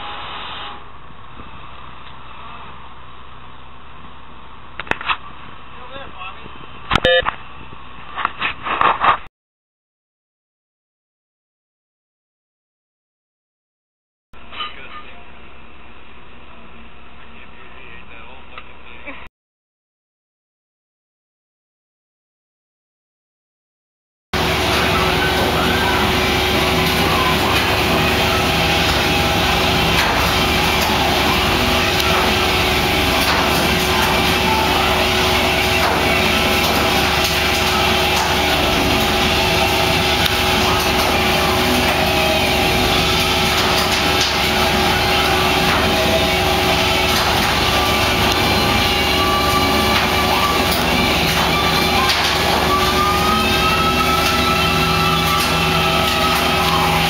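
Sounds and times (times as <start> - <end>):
boat engine drone: 24.4 - 57.0.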